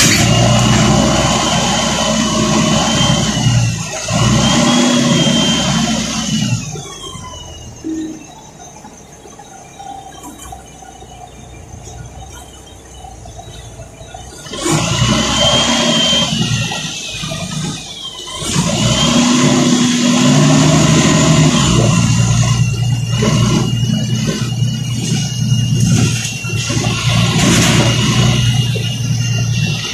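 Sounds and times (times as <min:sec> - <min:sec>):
bus engine throttling up with whine: 0:00.0 - 0:29.9.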